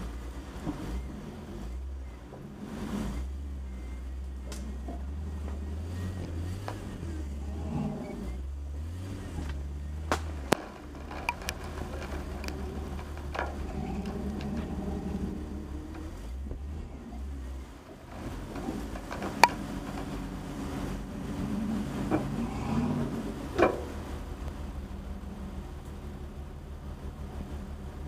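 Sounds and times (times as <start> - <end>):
car engine low drone: 0.0 - 28.0
light clicks and knocks: 9.4 - 21.1.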